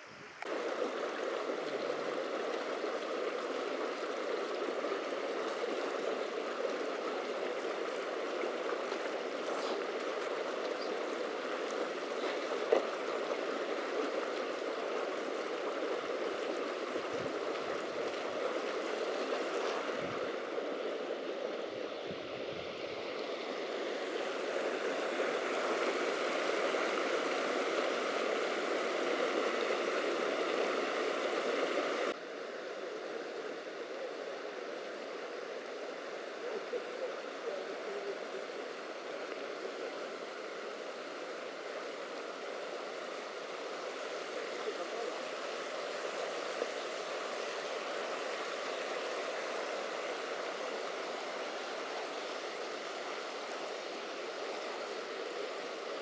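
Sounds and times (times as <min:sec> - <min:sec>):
mountain stream rushing: 0:00.0 - 0:56.0.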